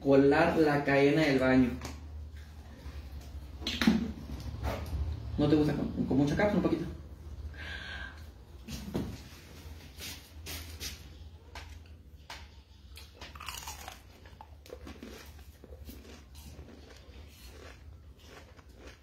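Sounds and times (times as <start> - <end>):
person chewing crispy food: 12.8 - 19.0.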